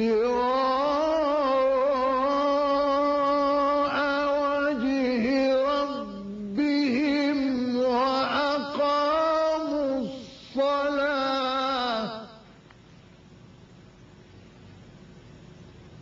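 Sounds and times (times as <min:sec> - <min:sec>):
man chanting recitation: 0:00.0 - 0:12.5.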